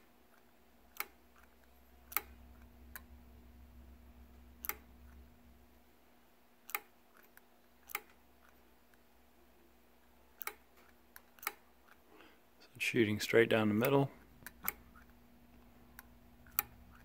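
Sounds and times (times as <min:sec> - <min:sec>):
throttle linkage clicks: 0:00.9 - 0:01.5, 0:02.1 - 0:03.1, 0:04.6 - 0:04.8, 0:06.7 - 0:08.6, 0:10.4 - 0:10.6.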